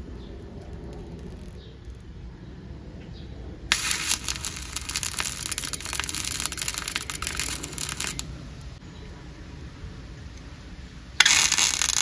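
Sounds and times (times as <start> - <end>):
welding arc crackling: 0.0 - 1.6, 3.7 - 8.8, 11.2 - 12.0.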